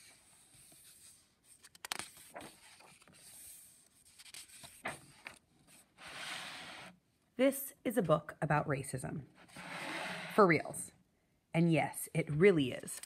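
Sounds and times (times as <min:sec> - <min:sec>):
book pages turning: 0:00.0 - 0:05.9.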